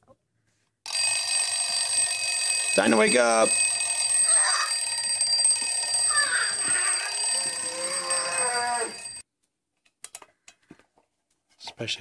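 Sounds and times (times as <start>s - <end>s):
alarm clock bells ringing: 0.9s - 9.2s
child shouting: 4.2s - 4.7s, 6.0s - 8.9s.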